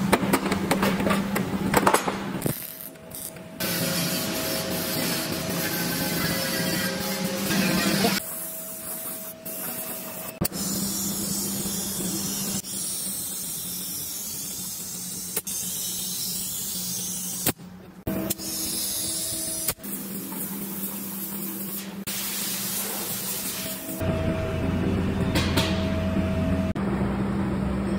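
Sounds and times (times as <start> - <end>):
compressed air hissing: 20.7 - 24.0
steady hum: 22.8 - 27.9.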